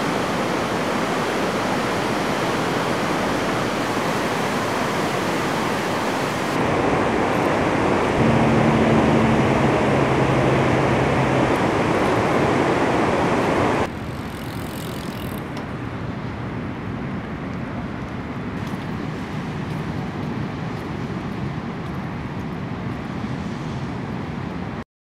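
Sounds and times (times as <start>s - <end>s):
river rushing in flood: 0.0s - 13.9s
low steady rumble: 8.2s - 13.9s.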